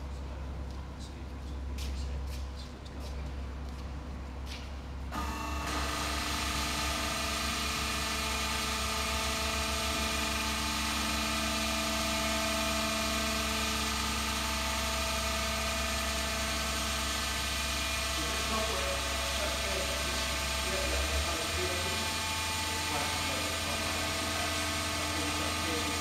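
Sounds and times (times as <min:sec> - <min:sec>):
hydraulic lift humming and whining: 0:01.4 - 0:26.0.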